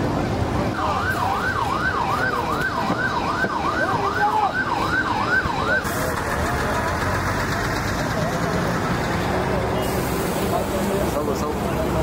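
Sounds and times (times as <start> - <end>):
traffic rumble: 0.0 - 12.0
emergency siren yelping: 0.7 - 6.0.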